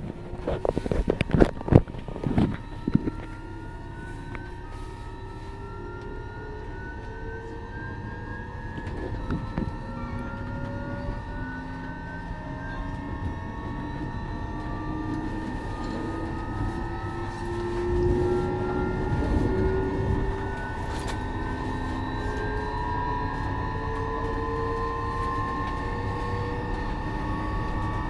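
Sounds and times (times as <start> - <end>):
electrical hum: 0.0 - 28.0
train traction motors whining: 0.0 - 28.0
wheels rumbling on rails: 0.0 - 28.0.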